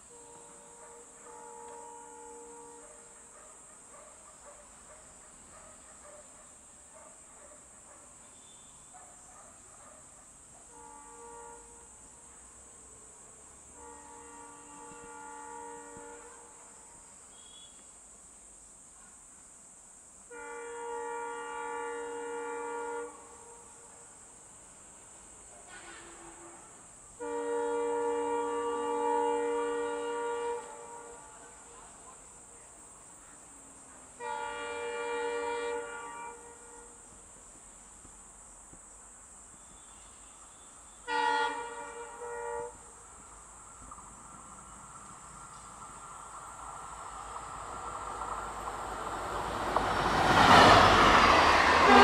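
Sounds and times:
locomotive horn blast: 0:00.0 - 0:03.1, 0:10.7 - 0:12.0, 0:13.7 - 0:16.7, 0:20.3 - 0:23.8, 0:25.7 - 0:31.7, 0:34.2 - 0:37.1, 0:39.6 - 0:43.0, 0:49.4 - 0:52.0
faint high-pitched hiss: 0:00.0 - 0:52.0.

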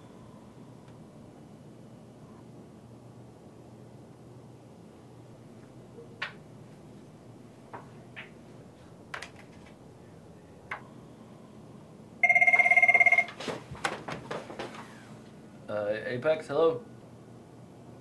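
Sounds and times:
electronic telephone ring: 0:12.2 - 0:13.4.

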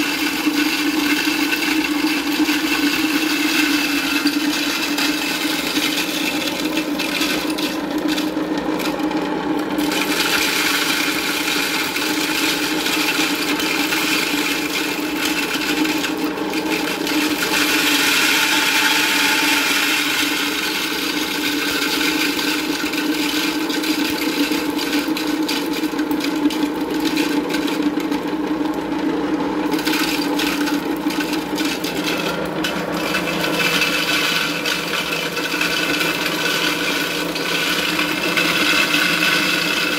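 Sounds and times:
grain grinding rasp: 0:00.0 - 0:09.0, 0:09.8 - 0:27.8, 0:29.7 - 0:39.9
grinder motor hum: 0:00.0 - 0:39.9.

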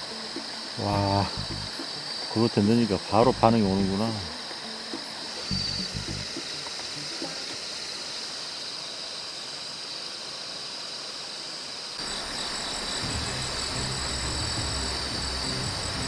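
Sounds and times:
outdoor background hiss: 0:00.0 - 0:16.0
music with low beat: 0:00.8 - 0:01.9, 0:04.9 - 0:06.9, 0:13.0 - 0:16.0.

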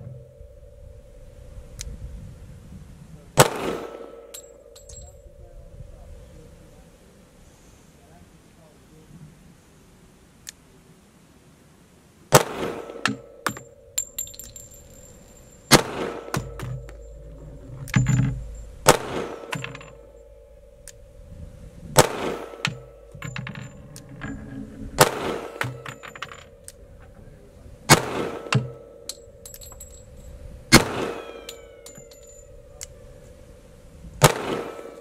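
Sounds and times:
brass casings tinkling: 0:00.0 - 0:02.1, 0:03.4 - 0:07.3, 0:12.8 - 0:35.0
pistol shots: 0:03.4 - 0:04.5, 0:12.3 - 0:14.7, 0:15.7 - 0:17.2, 0:18.8 - 0:20.0, 0:22.0 - 0:23.3, 0:25.0 - 0:26.2, 0:27.9 - 0:29.0, 0:30.7 - 0:32.1, 0:34.2 - 0:35.0.

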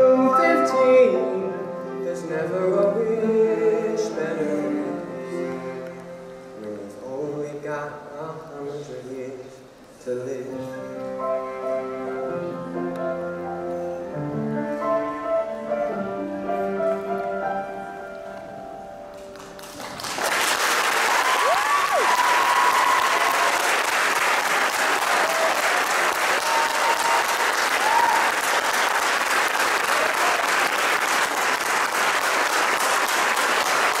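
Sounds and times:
audience applause: 0:19.3 - 0:34.0.

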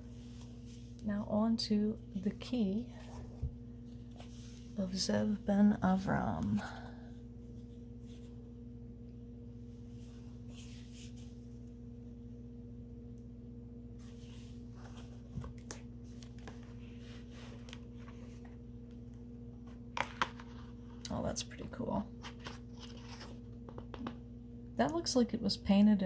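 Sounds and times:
low electrical hum: 0:00.0 - 0:26.0
book pages rustling: 0:14.0 - 0:18.6, 0:22.2 - 0:24.1.

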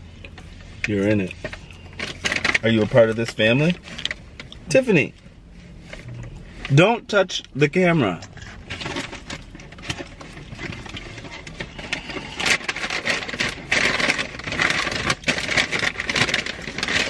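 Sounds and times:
paper packaging crinkling: 0:00.5 - 0:17.0.

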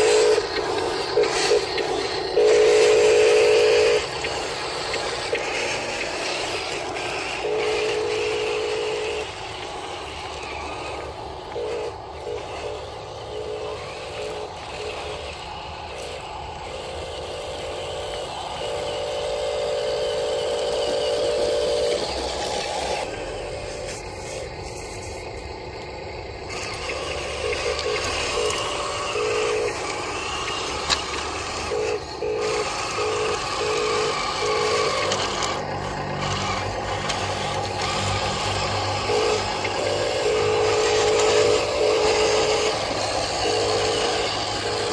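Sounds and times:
small toy motors: 0:00.0 - 0:44.9
electronic tone: 0:26.8 - 0:30.6, 0:31.5 - 0:36.8, 0:37.4 - 0:44.9.

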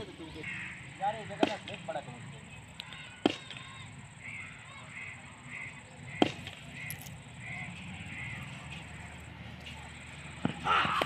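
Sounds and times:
bird calling: 0:00.0 - 0:11.0
cricket bat hitting ball: 0:06.2 - 0:06.6.

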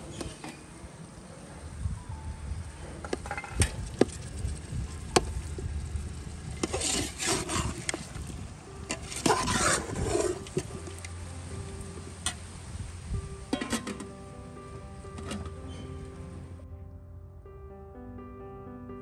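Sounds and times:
spoon scraping metal pot: 0:06.6 - 0:08.1, 0:08.9 - 0:10.6.

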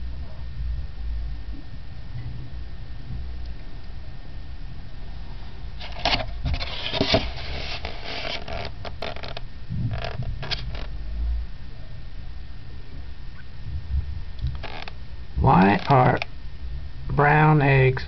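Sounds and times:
foam egg carton crackling: 0:05.8 - 0:09.4, 0:10.0 - 0:10.9, 0:14.6 - 0:16.3.

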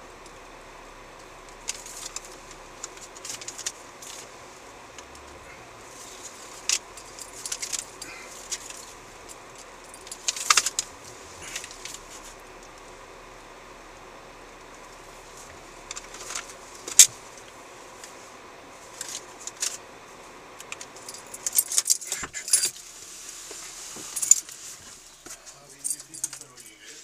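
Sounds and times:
steady low hiss: 0:00.0 - 0:27.0
keys jangling: 0:20.9 - 0:22.8, 0:25.8 - 0:26.9.

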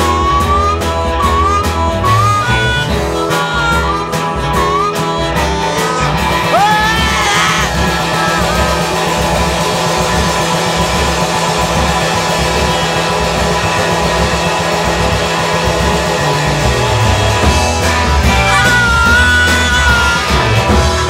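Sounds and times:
bass guitar: 0:00.0 - 0:21.0
drums: 0:00.0 - 0:21.0
electric guitar: 0:00.0 - 0:21.0.

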